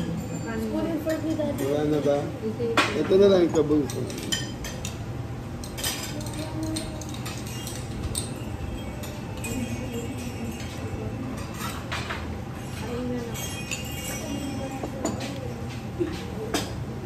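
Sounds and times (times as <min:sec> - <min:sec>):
low room hum: 0:00.0 - 0:17.0
spoons clinking on ceramic plates: 0:02.8 - 0:05.0, 0:05.6 - 0:16.8.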